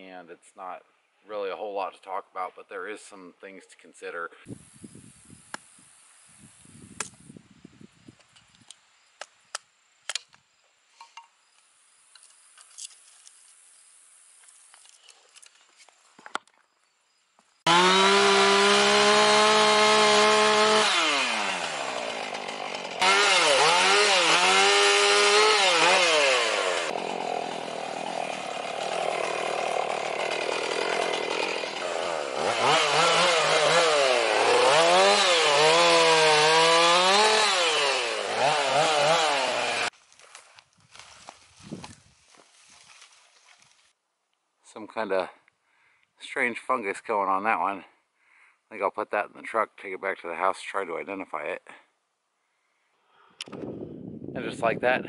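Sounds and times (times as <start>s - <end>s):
chainsaw cutting wood: 17.7s - 42.4s.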